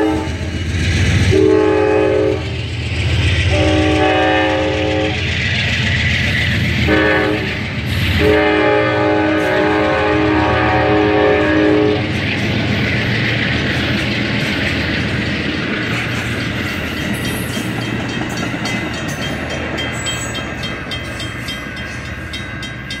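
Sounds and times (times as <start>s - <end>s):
train horn: 0.0s - 0.5s, 1.3s - 2.6s, 3.4s - 5.2s, 6.8s - 12.1s
train wheels clicking over rail joints: 0.0s - 23.0s.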